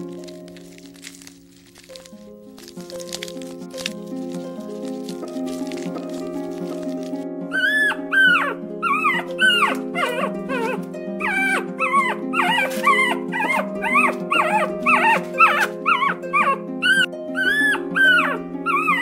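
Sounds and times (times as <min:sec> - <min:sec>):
background music with low notes: 0:00.0 - 0:19.0
bear cub whining: 0:04.9 - 0:19.0.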